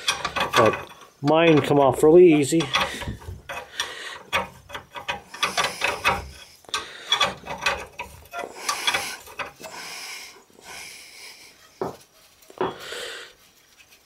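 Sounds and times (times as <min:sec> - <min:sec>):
ratcheting wrench clicking: 0:00.0 - 0:01.8, 0:02.4 - 0:09.7.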